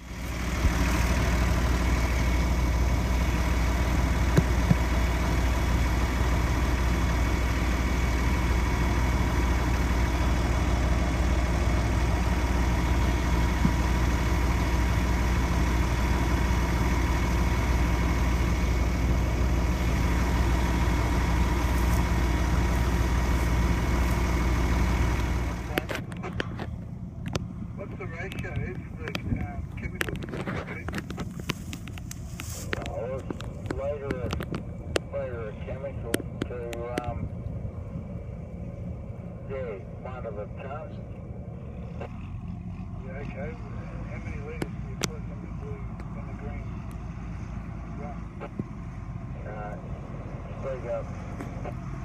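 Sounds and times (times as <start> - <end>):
auger unloading grain: 0.0 - 26.9, 27.7 - 34.7
diesel engines running: 0.0 - 52.0.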